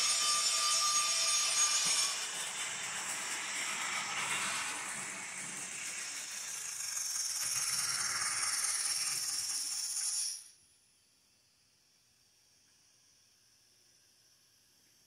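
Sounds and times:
steam locomotive hiss with rattle: 0:00.0 - 0:10.6.

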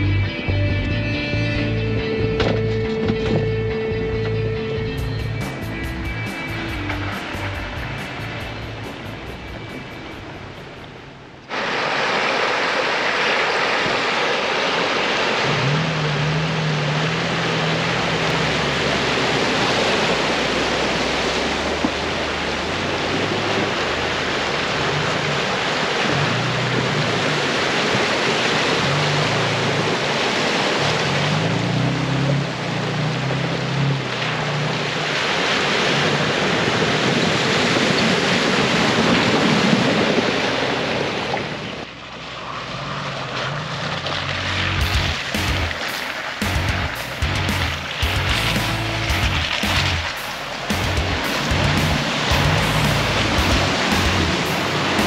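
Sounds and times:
truck engine hum: 0:00.0 - 0:55.0
creek rushing over rocks: 0:11.4 - 0:55.0.

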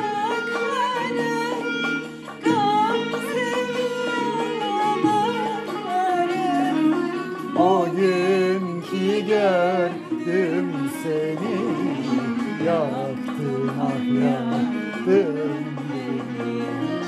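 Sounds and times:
instrumental accompaniment: 0:00.0 - 0:17.0
person singing with vibrato: 0:00.0 - 0:17.0.

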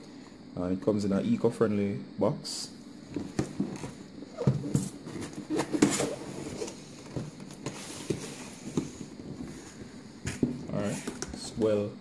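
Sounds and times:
cardboard scraping and rubbing: 0:03.3 - 0:11.4.

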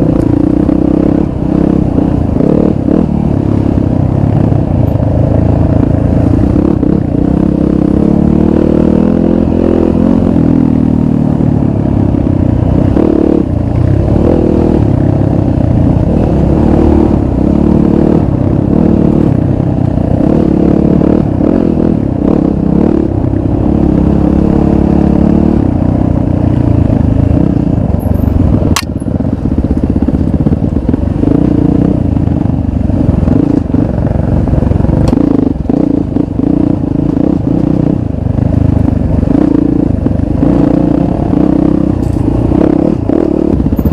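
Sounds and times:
dirt bike engine revving: 0:00.0 - 0:28.8, 0:29.4 - 0:43.9
sharp click: 0:28.7 - 0:29.0.

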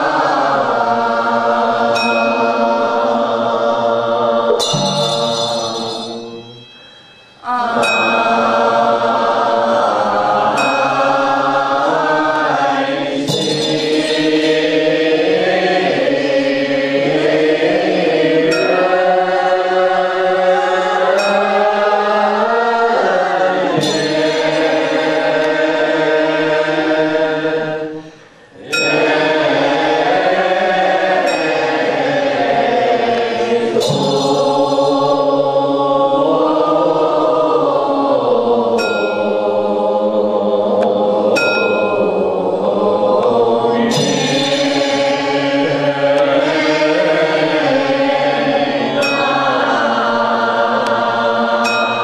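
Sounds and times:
group chanting in unison: 0:00.0 - 0:06.6, 0:07.4 - 0:52.0
small bell ringing: 0:04.6 - 0:08.6, 0:13.3 - 0:14.7.

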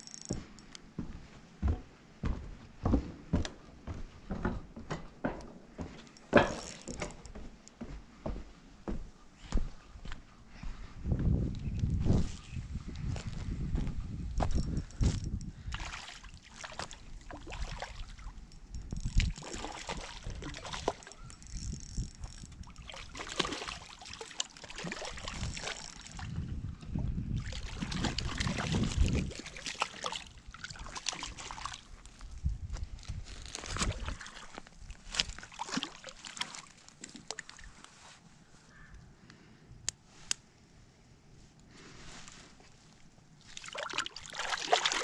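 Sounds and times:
handling knocks and rustles: 0:00.0 - 0:09.0
water sloshing and splashing: 0:05.2 - 0:07.3, 0:14.5 - 0:32.5, 0:33.1 - 0:38.2, 0:42.8 - 0:45.0.

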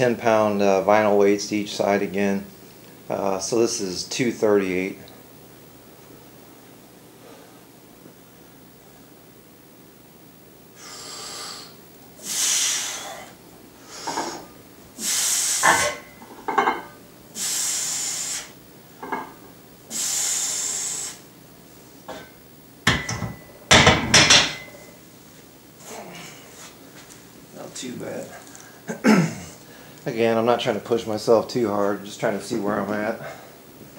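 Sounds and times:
man breathing forcefully: 0:10.8 - 0:15.6.

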